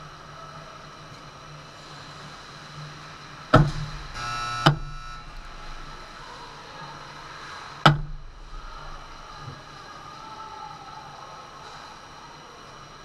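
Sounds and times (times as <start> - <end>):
ringing tone: 4.1 - 6.0.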